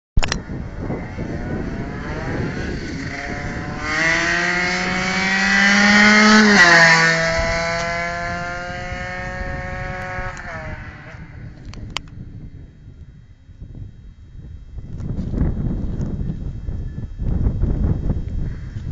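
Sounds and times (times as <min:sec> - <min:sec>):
two-stroke motorcycle at full throttle: 0:00.2 - 0:13.1.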